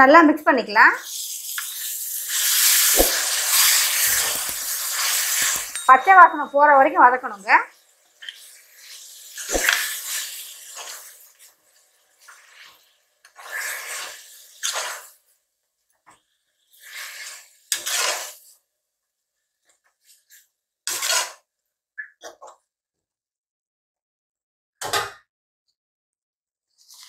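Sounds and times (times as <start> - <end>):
metal spatula scraping a pot: 1.1 - 15.2, 16.6 - 18.5, 20.3 - 21.4.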